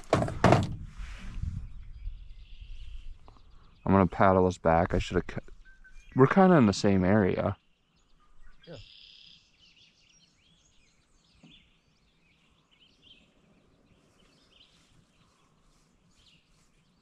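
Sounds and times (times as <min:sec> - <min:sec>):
faint bird chirps: 0:01.6 - 0:04.2, 0:05.4 - 0:06.4, 0:07.1 - 0:17.0.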